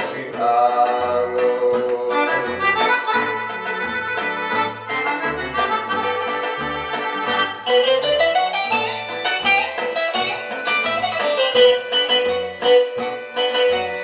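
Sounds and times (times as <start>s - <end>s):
person singing: 0.0s - 3.8s
instrumental pop music: 0.0s - 14.0s.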